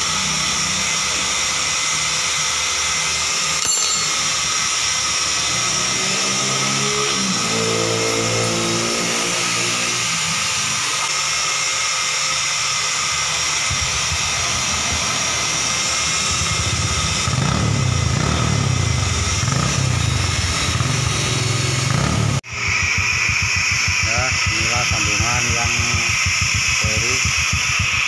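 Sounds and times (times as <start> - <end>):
motorcycle engine revving: 4.6 - 11.5, 12.7 - 28.0.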